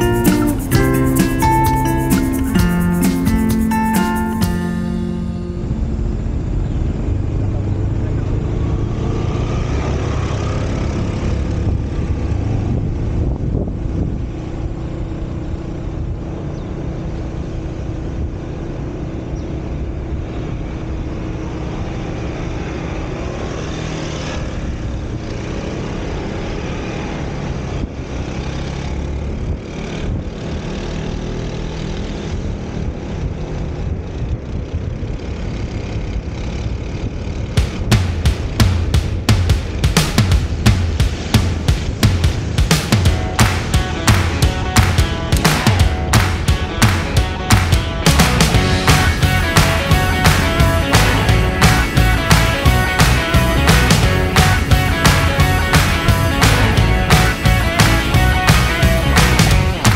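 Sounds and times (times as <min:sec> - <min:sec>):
scooter engine drone: 0:00.0 - 0:59.9
wind rushing over microphone: 0:10.5 - 0:15.2.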